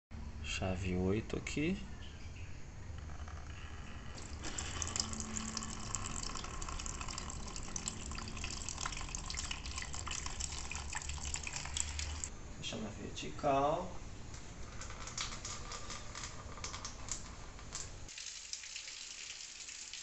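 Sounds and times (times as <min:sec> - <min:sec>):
liquid pouring into plastic container: 0:04.2 - 0:12.3.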